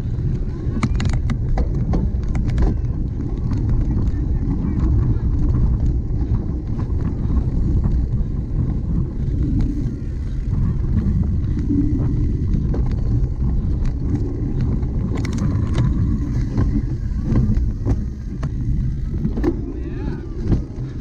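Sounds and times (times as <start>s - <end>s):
bicycle tyres rumbling: 0.0s - 21.0s
bike clicks and rattles: 0.0s - 21.0s.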